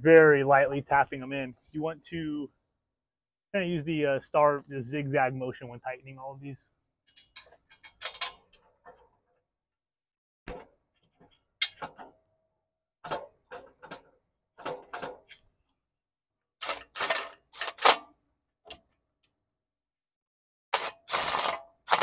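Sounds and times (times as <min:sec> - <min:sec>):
metallic clicks of bolts and wrench: 0:07.1 - 0:08.7, 0:11.6 - 0:12.1.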